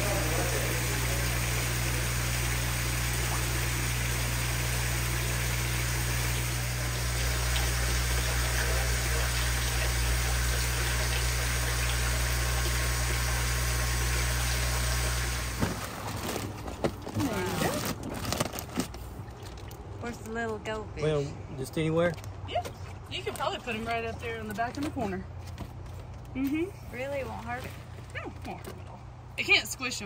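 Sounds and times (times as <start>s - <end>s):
circulating water rushing: 0.0s - 16.5s, 22.5s - 24.7s
water pumps humming: 0.0s - 26.3s, 26.9s - 30.0s.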